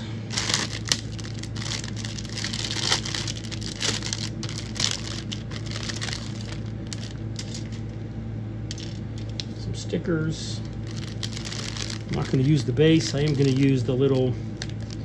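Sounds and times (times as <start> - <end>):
steady low hum: 0.0 - 15.0
plastic bag crinkling: 0.3 - 7.8, 10.6 - 15.0.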